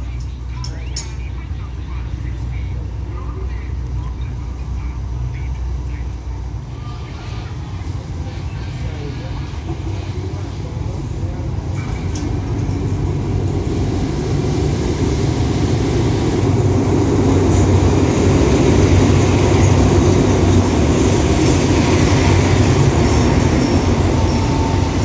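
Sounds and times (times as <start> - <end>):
diesel locomotives rumbling past: 0.0 - 25.0.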